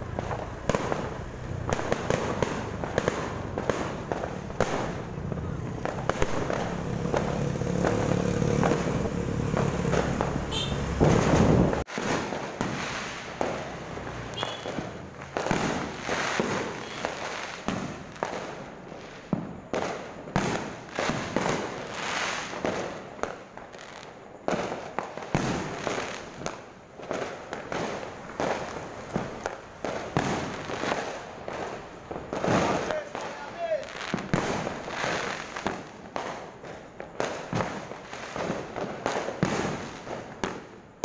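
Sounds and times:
road noise rushing: 0.0 - 18.1, 27.0 - 35.6
fireworks bursting and crackling: 0.0 - 41.0.

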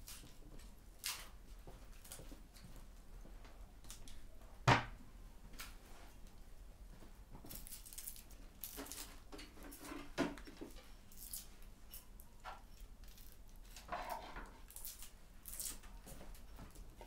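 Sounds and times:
onion skin crackling and scraping: 7.5 - 12.1, 12.8 - 15.9.

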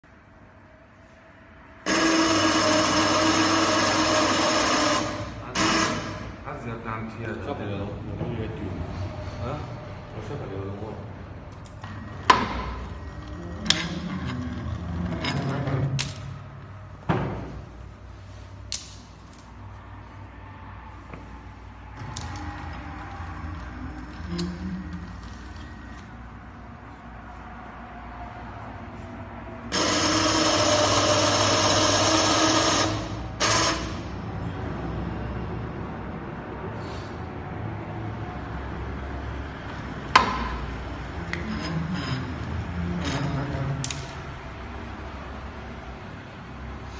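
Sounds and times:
low machine hum: 0.1 - 18.6, 19.2 - 31.8
machine servos whirring: 1.9 - 6.4, 29.7 - 34.2
low motor drone: 8.6 - 16.6, 20.2 - 31.5.

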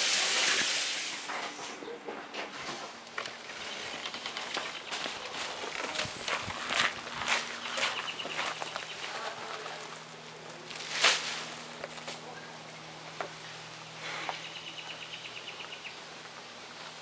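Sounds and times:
footsteps crunching on gravel: 2.8 - 12.3
plastic bag rustling: 3.1 - 12.3.

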